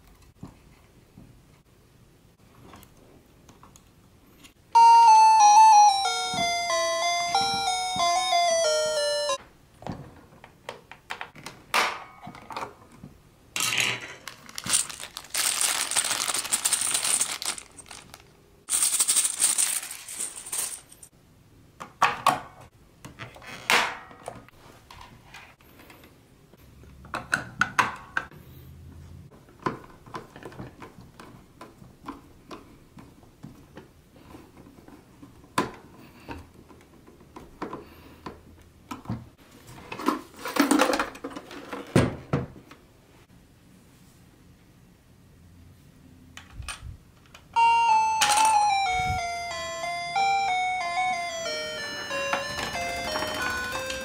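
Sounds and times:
crinkling rustling: 14.2s - 21.1s.

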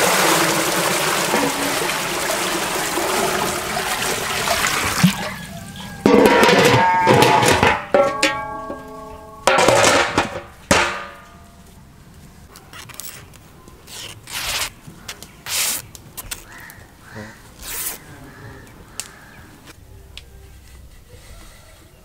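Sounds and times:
metal lid clanging on pot: 6.0s - 11.3s.

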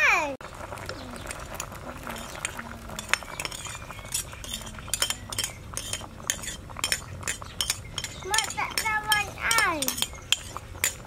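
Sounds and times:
spoon scraping ceramic plate: 2.1s - 11.0s.

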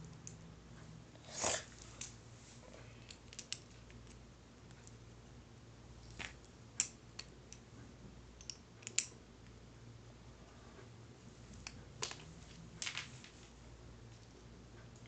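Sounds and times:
faint low hum: 0.0s - 15.0s
small plastic parts clicking: 3.0s - 5.0s, 8.4s - 9.2s.

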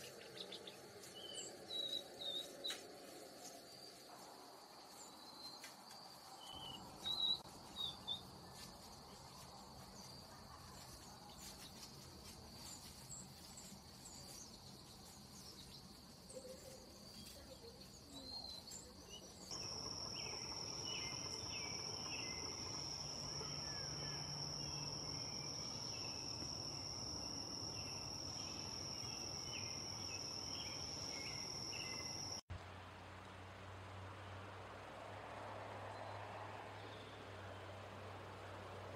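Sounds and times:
insects trilling: 16.1s - 32.4s
insect drone: 18.0s - 32.4s.

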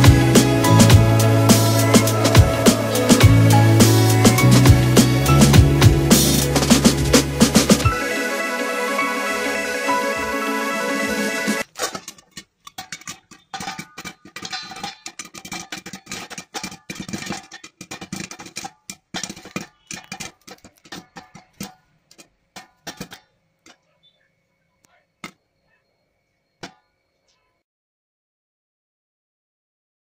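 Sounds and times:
popcorn popping in a pan: 11.6s - 24.2s.

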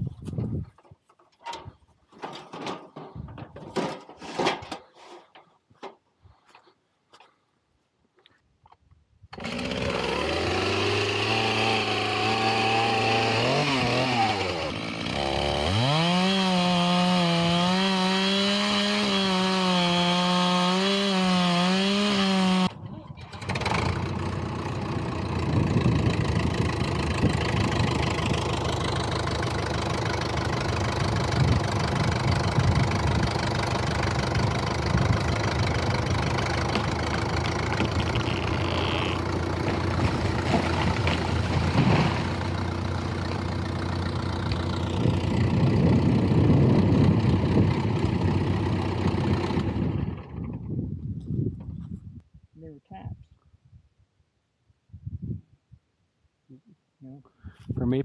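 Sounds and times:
chainsaw engine revving: 9.3s - 32.6s, 33.2s - 46.2s, 47.0s - 50.4s
diesel tractor engine idling: 23.2s - 49.9s.

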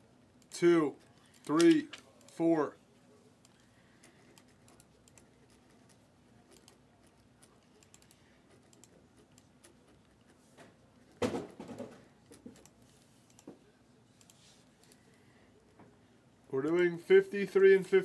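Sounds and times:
mouse and keyboard clicks: 3.4s - 10.4s.

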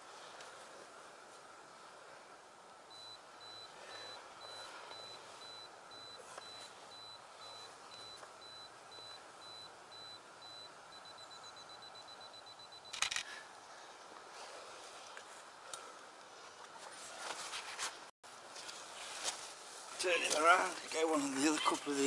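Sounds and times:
camera self-timer beeping: 2.9s - 13.2s
camera shutter clicks: 12.9s - 13.3s.

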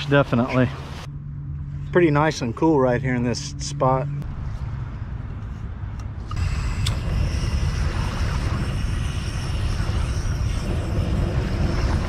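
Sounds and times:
camping stove gas hissing: 6.3s - 12.0s
wind rumble on microphone: 6.4s - 12.0s.

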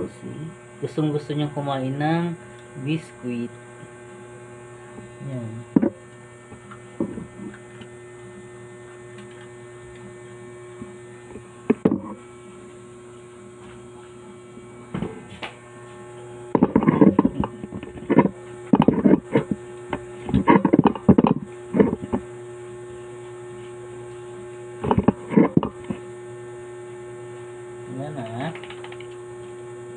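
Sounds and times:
electrical mains hum: 0.0s - 29.9s
clicks: 28.5s - 29.2s.

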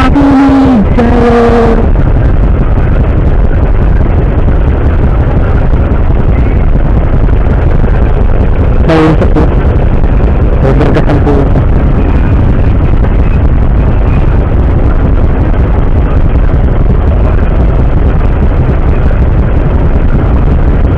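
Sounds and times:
low rumble on microphone: 0.0s - 20.9s
short pitched tones: 8.6s - 9.8s.

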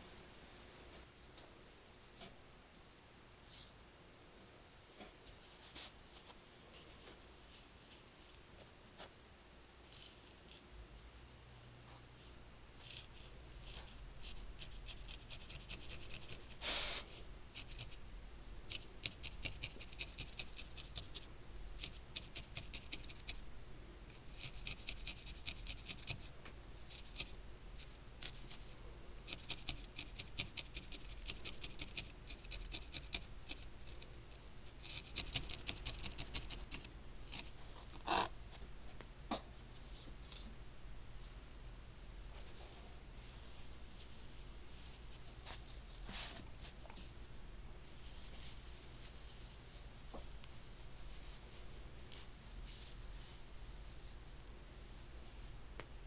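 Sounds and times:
felting needle ticking: 18.7s - 21.2s.

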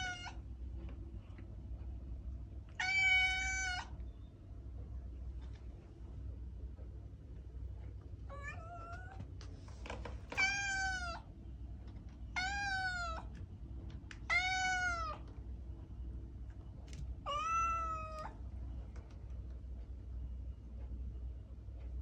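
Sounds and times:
cat meowing: 0.0s - 0.4s, 2.7s - 4.0s, 8.3s - 9.2s, 10.3s - 11.3s, 12.3s - 13.3s, 14.2s - 15.2s, 17.2s - 18.4s.

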